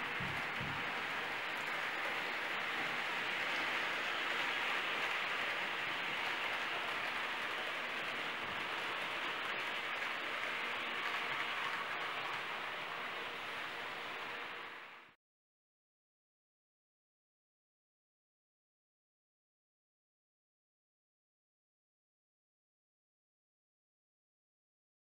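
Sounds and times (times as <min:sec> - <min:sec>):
model train wheels rolling on track: 0:00.0 - 0:15.2.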